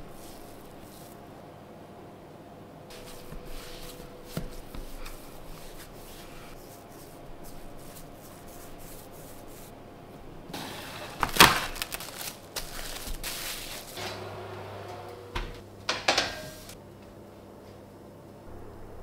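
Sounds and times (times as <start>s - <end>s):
hands rolling dough on wood: 2.9s - 9.7s
plastic wrap crinkling: 11.1s - 14.0s.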